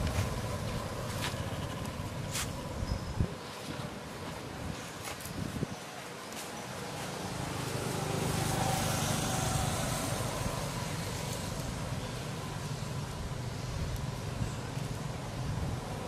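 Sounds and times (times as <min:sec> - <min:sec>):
vehicle engine drone passing: 0:06.7 - 0:16.0.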